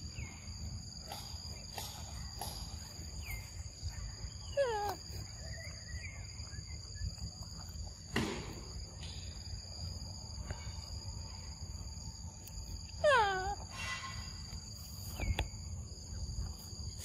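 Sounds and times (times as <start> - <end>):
monkey squealing call: 4.5 - 5.2, 13.0 - 14.3.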